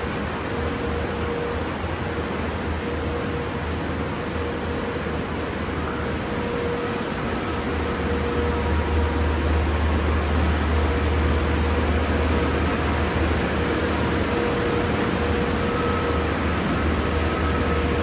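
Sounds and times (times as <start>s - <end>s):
brief high hiss: 13.5s - 14.3s.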